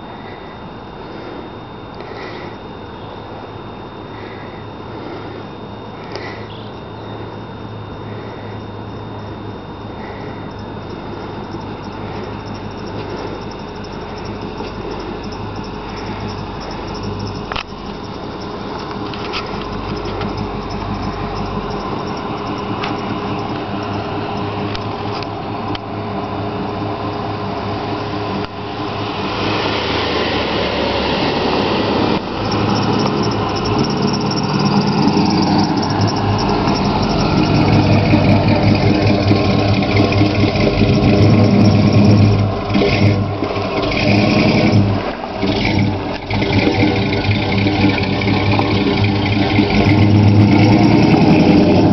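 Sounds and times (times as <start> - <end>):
cars driving past: 6.0 - 51.9.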